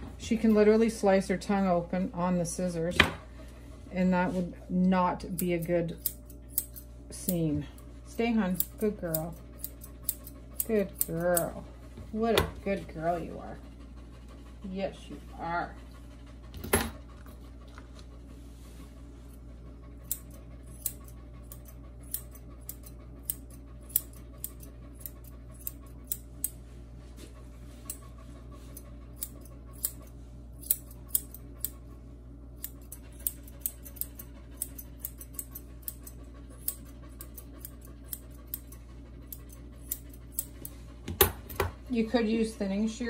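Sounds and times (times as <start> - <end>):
scissors snipping hair: 5.2 - 7.4, 8.2 - 11.6, 20.0 - 26.6, 28.7 - 31.8, 32.6 - 41.6.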